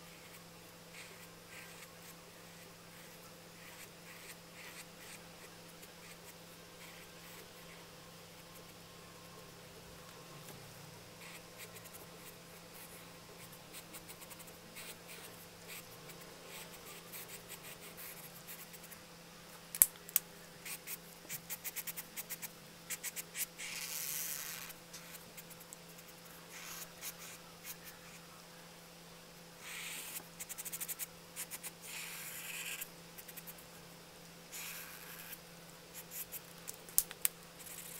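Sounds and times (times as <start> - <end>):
marker scratching on paper: 0.1 - 7.8, 20.7 - 28.2, 29.6 - 33.6, 34.6 - 35.4.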